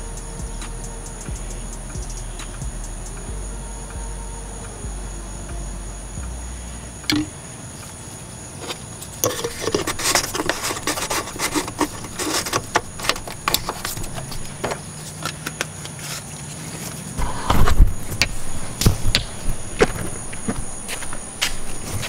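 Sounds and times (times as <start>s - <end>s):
high insect drone: 0.0s - 22.0s
plastic cap clicking and rattling: 9.2s - 15.8s.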